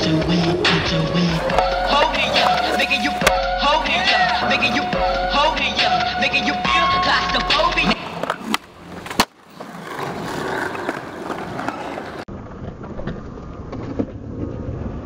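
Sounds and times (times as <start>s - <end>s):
skateboard wheels rolling on concrete: 0.1s - 15.0s
skateboard clack: 1.2s - 3.4s, 7.3s - 15.0s.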